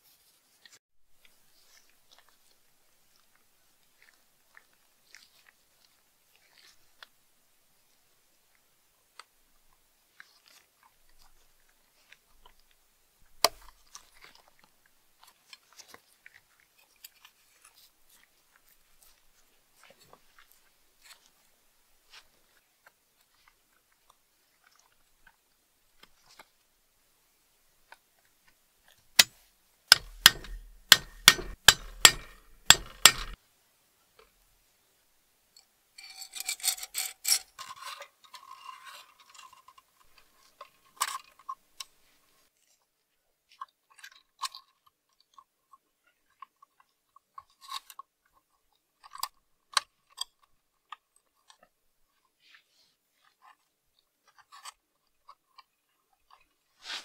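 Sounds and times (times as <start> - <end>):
crinkling rustle: 0.0 - 7.2, 7.8 - 26.7, 49.8 - 57.0
sharp metal clicks: 29.2 - 33.4
sheet metal clicks and ticks: 29.9 - 33.4.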